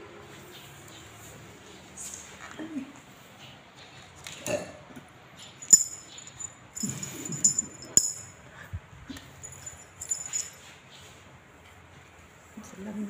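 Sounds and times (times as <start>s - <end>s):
small metal bells jingling: 5.4s - 8.4s, 9.2s - 10.7s.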